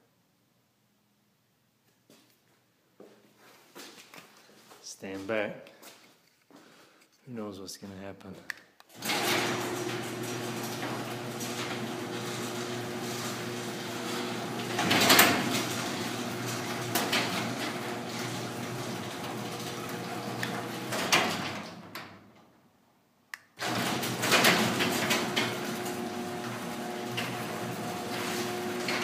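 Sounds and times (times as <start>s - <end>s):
garage door opener motor hum: 8.9s - 22.5s, 23.6s - 29.0s
door panels popping and banging: 9.0s - 22.4s, 23.6s - 29.0s
garage door rattling in tracks: 9.0s - 22.5s, 23.6s - 29.0s.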